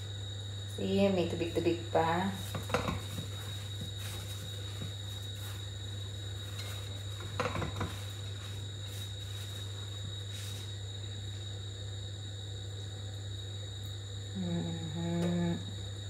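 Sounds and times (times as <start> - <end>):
low electrical hum: 0.0 - 16.0
rustling of chicken in flour: 2.4 - 10.8.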